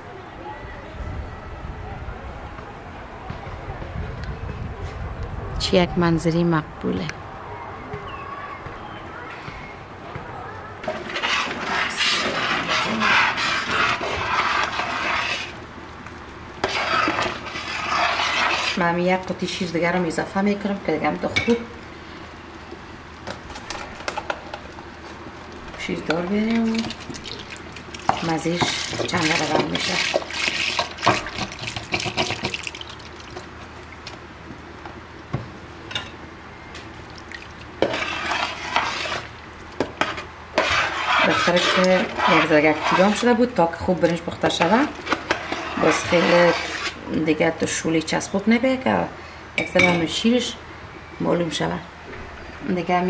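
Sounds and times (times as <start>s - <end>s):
spoon scraping and stirring in pot: 10.8s - 15.6s, 16.6s - 19.3s, 25.9s - 33.5s, 37.8s - 47.8s
liquid trickling in a pot: 26.8s - 29.0s, 29.9s - 34.1s, 37.1s - 38.3s.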